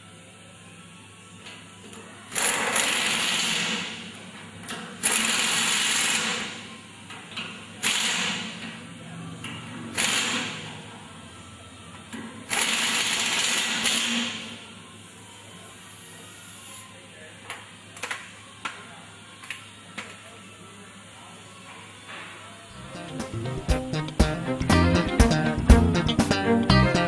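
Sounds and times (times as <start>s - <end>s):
pneumatic impact wrench: 2.3s - 4.0s, 4.7s - 6.6s, 7.8s - 8.6s, 9.9s - 10.6s, 12.5s - 14.6s.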